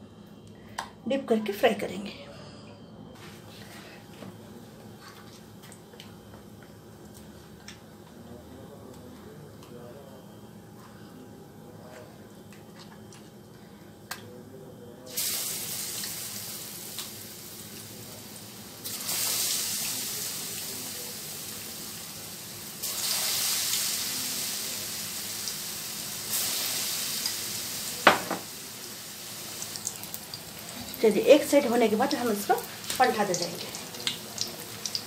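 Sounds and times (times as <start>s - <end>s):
potato slices sizzling in oil: 15.1s - 35.0s.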